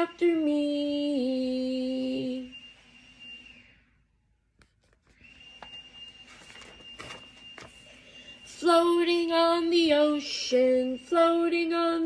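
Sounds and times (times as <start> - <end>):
book pages turning: 4.6 - 8.0.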